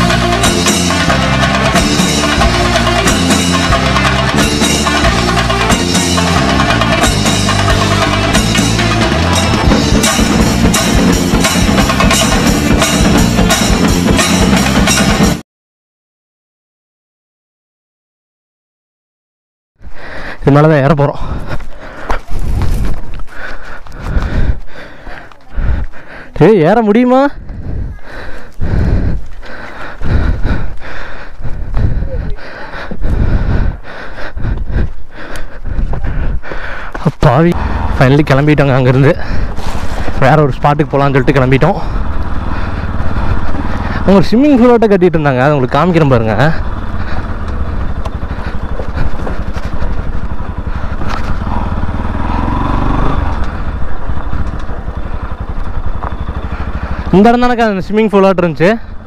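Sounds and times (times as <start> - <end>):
motorcycle engine revving: 0.0 - 15.4, 37.5 - 59.0
person breathing hard: 19.8 - 20.4, 21.2 - 26.4, 27.4 - 37.0, 37.6 - 38.0, 39.2 - 40.2, 41.8 - 44.1, 46.6 - 54.2, 56.5 - 57.2, 58.8 - 59.0
breath hitting microphone: 21.2 - 26.4, 27.4 - 37.0, 39.2 - 40.2.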